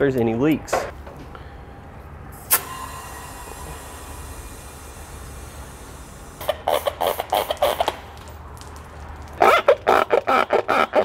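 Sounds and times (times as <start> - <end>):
short air spurts: 1.2 - 8.2
compressed air hissing: 1.4 - 8.1.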